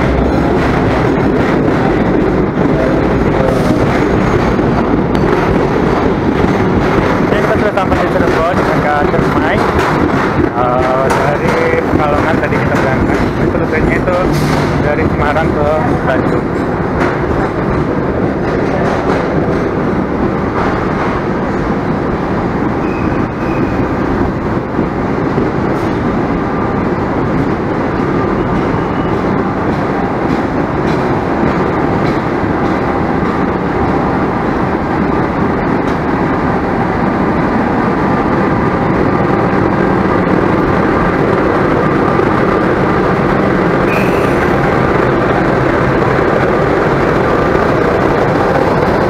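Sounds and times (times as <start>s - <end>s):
diesel locomotive engine idling: 35.6s - 49.0s.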